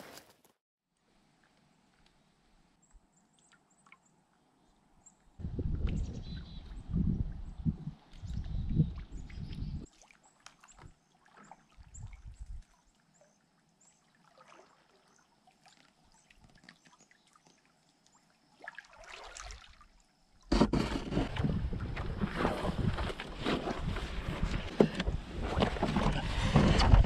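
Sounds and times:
wind on microphone: 0:05.4 - 0:09.9, 0:11.8 - 0:12.6, 0:20.6 - 0:27.0
paddle dipping in water: 0:09.0 - 0:27.0
rush of water: 0:18.6 - 0:19.9.

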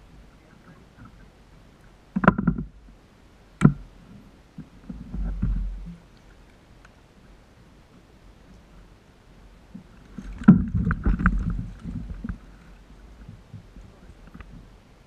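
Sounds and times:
gear clattering on plastic hull: 0:02.1 - 0:02.8, 0:10.1 - 0:12.6.

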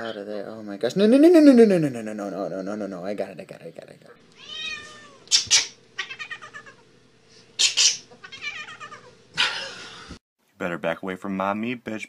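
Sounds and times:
cat yowling and meowing: 0:04.4 - 0:05.4, 0:06.0 - 0:06.8, 0:08.2 - 0:09.2.

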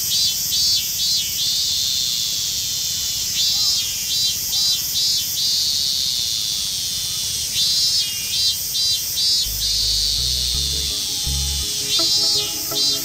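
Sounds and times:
background music: 0:09.5 - 0:13.0.

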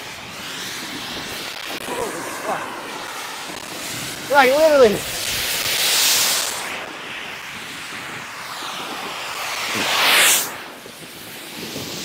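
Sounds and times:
snowboards sliding on snow: 0:00.0 - 0:12.0
wind rushing: 0:00.0 - 0:12.0.

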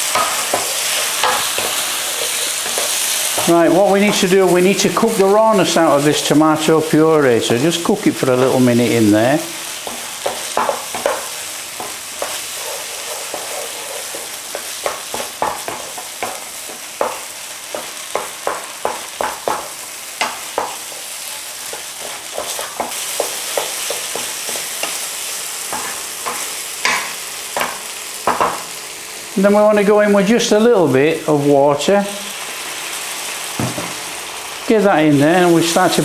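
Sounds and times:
wooden spatula scraping a pan: 0:00.0 - 0:04.4, 0:09.5 - 0:19.6, 0:20.2 - 0:25.0
curry sizzling in a frying pan: 0:00.0 - 0:36.0
spatula knocking on pan: 0:00.1 - 0:04.3, 0:09.8 - 0:21.0, 0:21.6 - 0:25.0, 0:25.7 - 0:28.7, 0:33.6 - 0:34.0.

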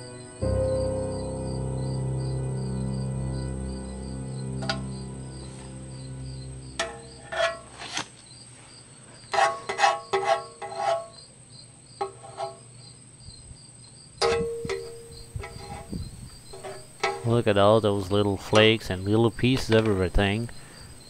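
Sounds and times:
metal pick scraping metal: 0:06.8 - 0:08.1, 0:09.3 - 0:11.2, 0:12.0 - 0:12.6, 0:14.2 - 0:18.8.

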